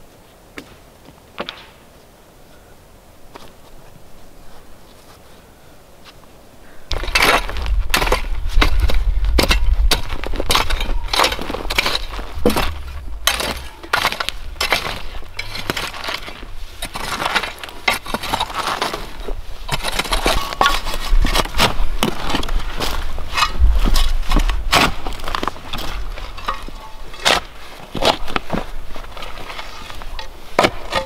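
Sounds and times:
rake scraping through soil: 6.9s - 31.0s
shovel digging into soil: 6.9s - 31.0s.

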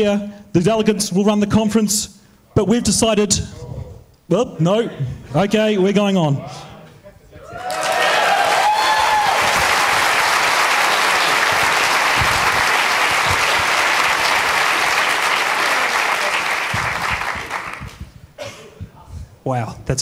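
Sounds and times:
crowd applauding: 7.6s - 18.1s.

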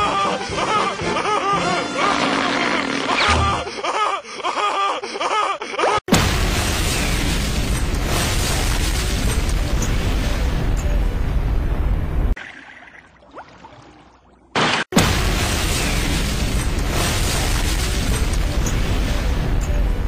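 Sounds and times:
cartoon background music: 0.0s - 3.8s
loud explosion rumbling: 6.1s - 12.4s, 15.0s - 20.0s.

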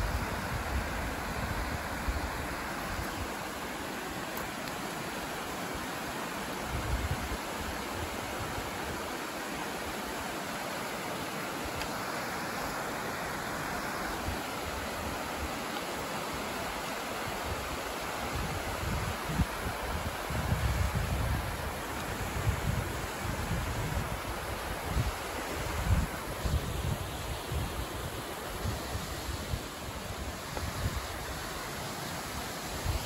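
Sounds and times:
stream rushing over rocks: 0.0s - 33.0s
wind buffeting microphone: 18.3s - 31.2s.

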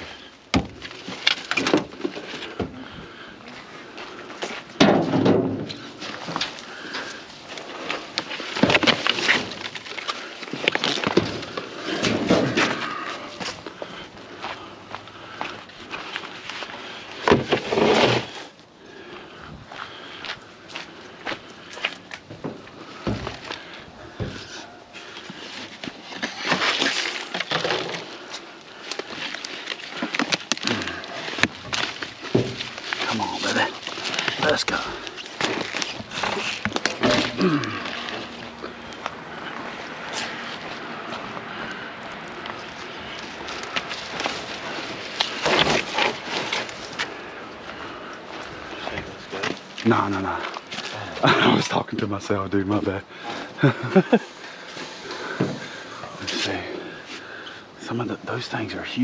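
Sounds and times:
rustling leaves: 0.0s - 59.0s
leaves rustling: 24.4s - 51.6s.

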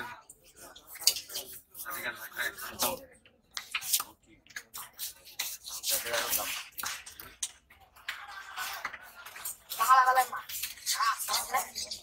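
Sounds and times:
knife scraping fish scales: 0.5s - 3.0s, 3.7s - 7.0s, 8.4s - 12.0s.

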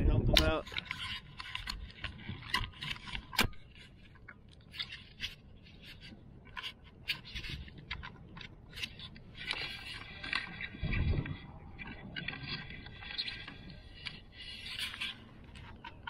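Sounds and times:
kayak scraping and clicking: 0.0s - 16.0s.

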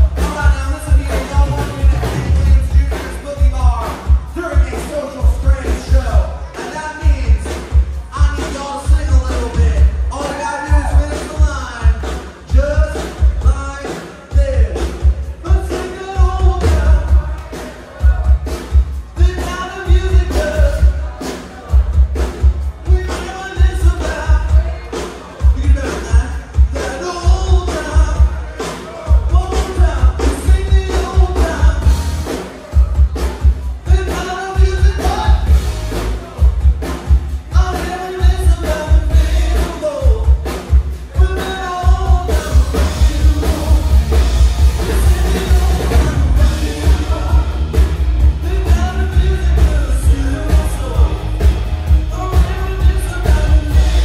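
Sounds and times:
live band bass and drums: 0.0s - 54.0s
person singing: 0.0s - 54.0s.

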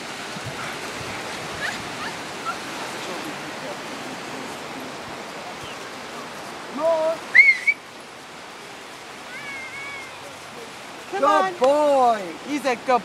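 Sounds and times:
surf hissing: 0.0s - 13.0s
person whistling: 7.3s - 7.8s.

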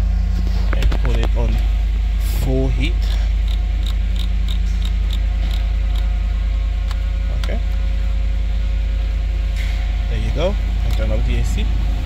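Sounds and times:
engine idling hum: 0.0s - 12.0s.

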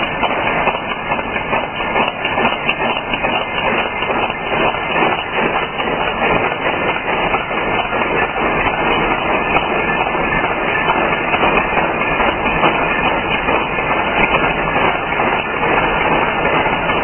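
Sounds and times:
machine metallic clatter: 0.0s - 17.0s.

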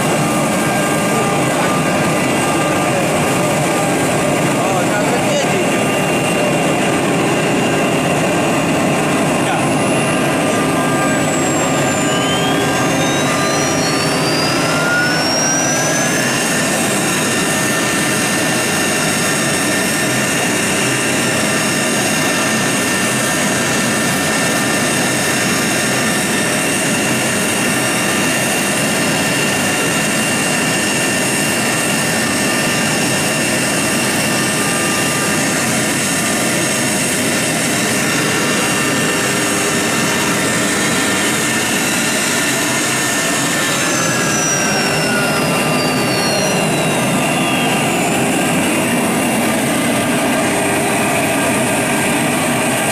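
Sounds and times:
router spindle whine: 0.0s - 52.9s
machine noise rushing: 30.5s - 52.8s.

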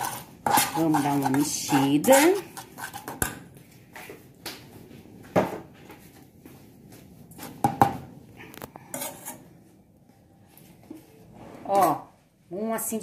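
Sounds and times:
metal spoon scraping a saucepan: 0.0s - 3.3s, 8.8s - 9.6s.

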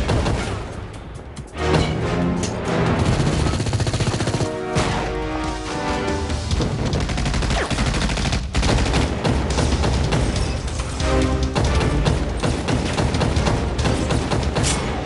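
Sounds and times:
film music score: 0.0s - 15.0s
rapid automatic gunfire: 3.0s - 4.6s, 6.5s - 15.0s.

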